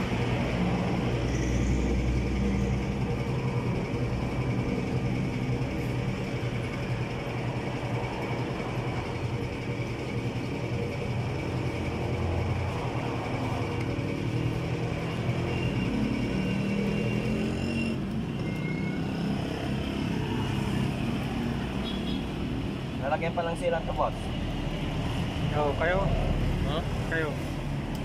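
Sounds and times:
low rumble of vehicle engines: 0:00.0 - 0:28.0.

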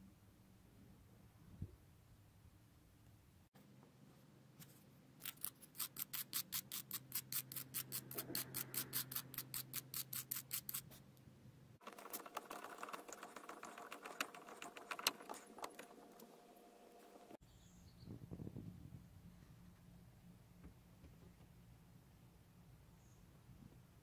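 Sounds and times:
wire brush scrubbing: 0:05.2 - 0:11.0, 0:11.8 - 0:17.4
light clicks and scratching: 0:11.8 - 0:17.4.

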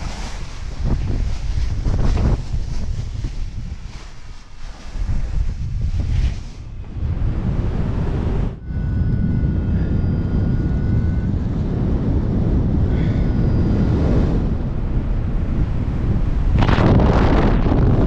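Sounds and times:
rushing wind on microphone: 0:00.0 - 0:18.0
faint steady tone: 0:07.9 - 0:15.7.

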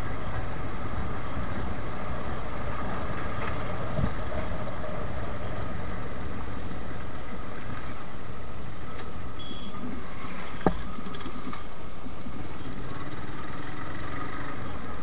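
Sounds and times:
motorcycle engine running: 0:00.0 - 0:15.0
wind and road noise: 0:00.0 - 0:15.0.

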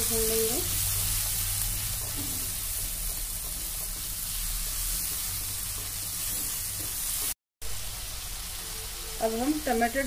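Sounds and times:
paste sizzling in oil: 0:00.0 - 0:10.0
spatula stirring in wok: 0:00.4 - 0:07.4.

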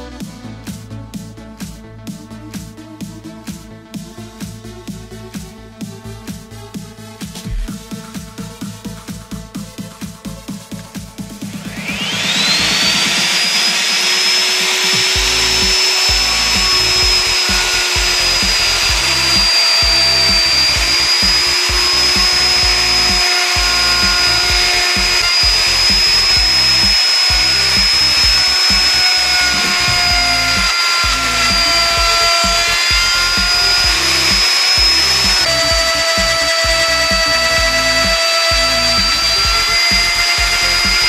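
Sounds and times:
background music with steady beat: 0:00.0 - 0:41.0
electric router whining: 0:11.3 - 0:41.0.

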